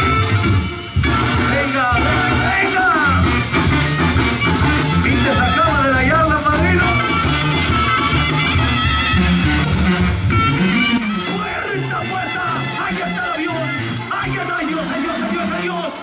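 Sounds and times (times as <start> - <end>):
steady bass beat: 0.0 - 15.6
guitar: 0.0 - 16.0
singing voice: 1.5 - 3.2.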